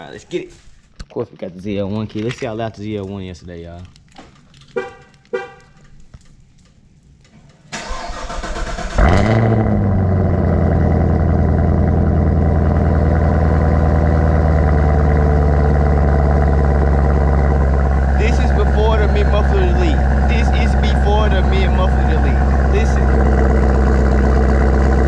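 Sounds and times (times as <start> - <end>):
car engine cranking: 7.7 - 25.0
car engine revving and idling: 7.8 - 25.0.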